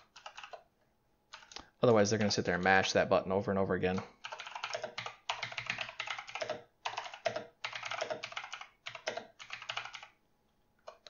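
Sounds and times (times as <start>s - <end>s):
typing on computer keyboard: 0.0s - 0.6s, 1.3s - 2.3s, 4.2s - 10.2s.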